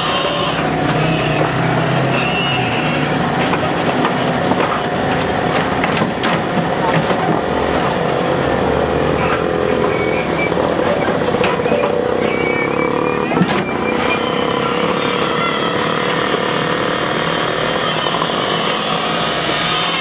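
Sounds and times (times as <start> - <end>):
small engine running: 0.0 - 20.0
sharp knocks: 3.3 - 8.2.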